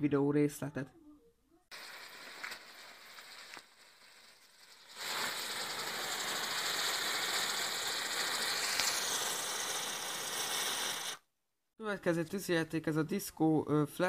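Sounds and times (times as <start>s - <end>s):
spinner firework fizzing and hissing: 1.7s - 11.2s.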